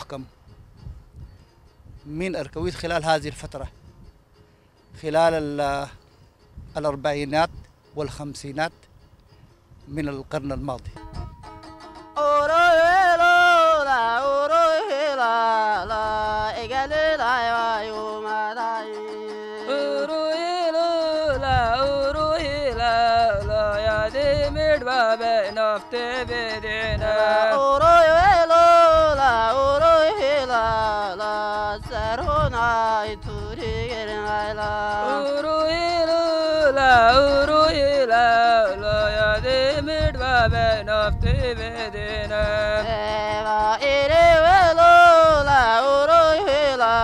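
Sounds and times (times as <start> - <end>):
lyre playing: 0.0 - 47.0
man singing folk melody: 2.0 - 3.9, 4.8 - 9.0, 9.8 - 47.0.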